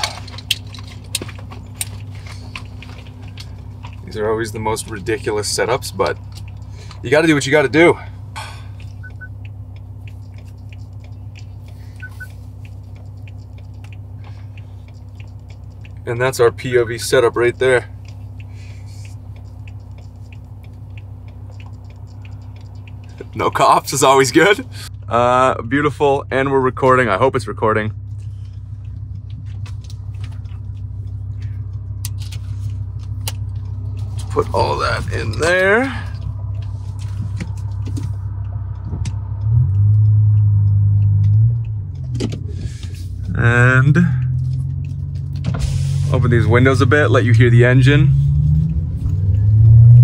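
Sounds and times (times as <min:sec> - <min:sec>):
car engine idling: 0:00.0 - 0:50.0
short double beeps: 0:12.0 - 0:12.3.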